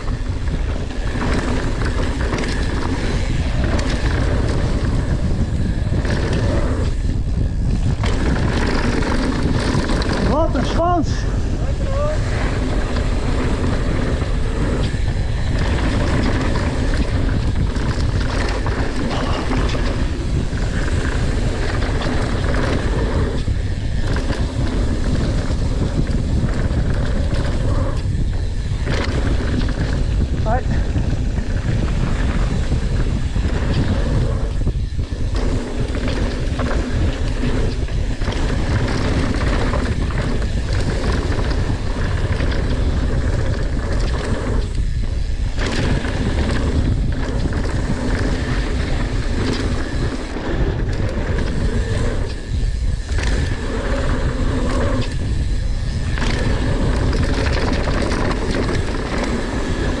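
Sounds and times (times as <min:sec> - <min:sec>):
bike knocks and rattles: 0:00.0 - 1:00.0
tyres rumbling on dirt: 0:00.0 - 1:00.0
wind: 0:00.0 - 1:00.0.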